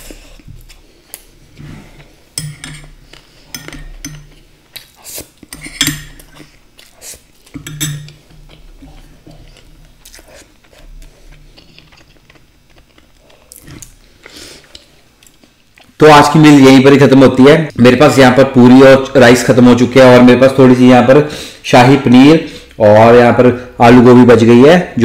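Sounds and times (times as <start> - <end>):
chewing: 6.3 - 16.0.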